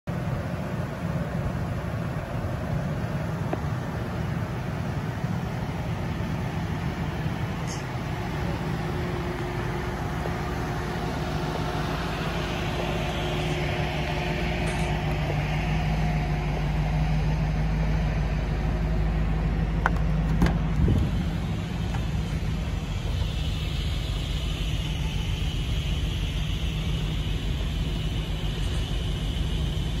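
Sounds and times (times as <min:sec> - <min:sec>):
engine idling: 0:00.1 - 0:30.0.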